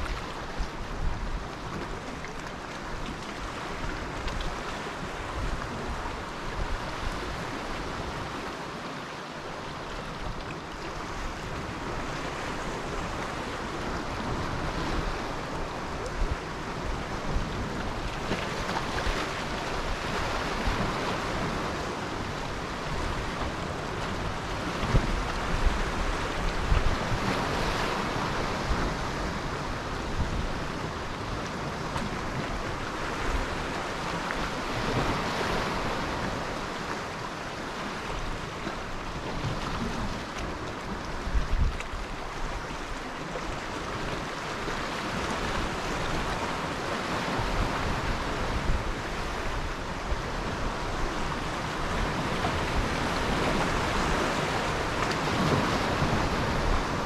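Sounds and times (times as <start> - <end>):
waves breaking on shore: 0.0 - 57.0
wind buffeting microphone: 11.0 - 36.8, 39.3 - 57.0.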